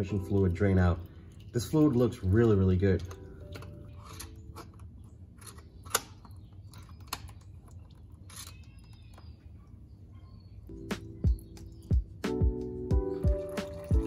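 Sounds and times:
low steady hum: 0.0 - 14.0
screwdriver clicking and scraping metal: 3.0 - 7.4, 8.2 - 9.0.

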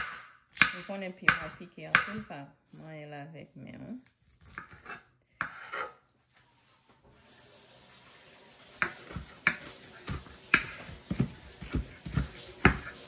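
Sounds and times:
tap water running into sink: 7.1 - 13.0.

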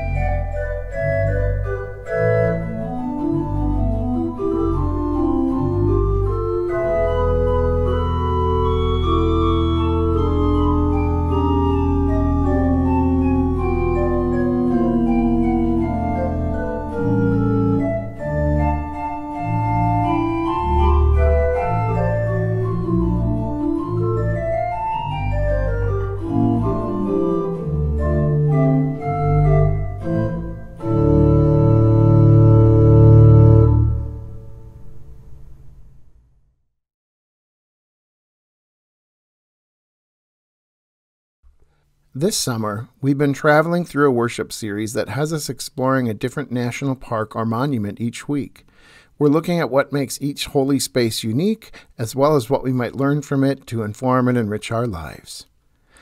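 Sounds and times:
church organ chords: 0.0 - 35.5.

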